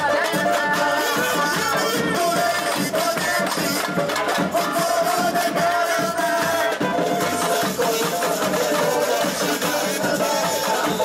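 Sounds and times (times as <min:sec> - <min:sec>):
samba band playing: 0:00.0 - 0:11.0.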